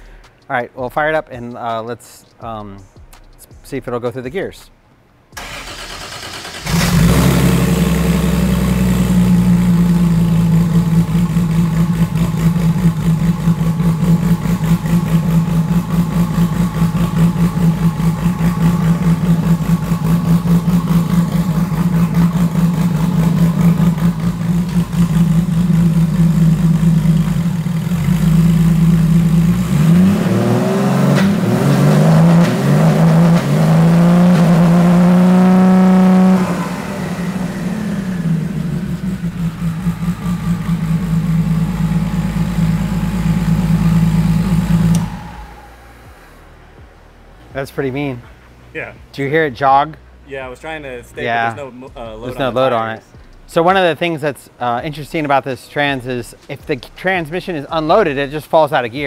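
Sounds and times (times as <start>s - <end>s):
car engine idling and revving: 5.4s - 49.1s.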